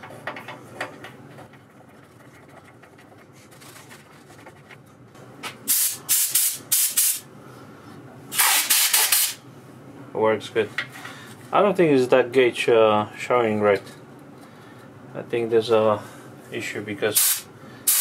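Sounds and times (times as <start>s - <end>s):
compressed air hissing blasts: 5.7s - 7.2s, 8.3s - 9.4s, 17.2s - 18.0s.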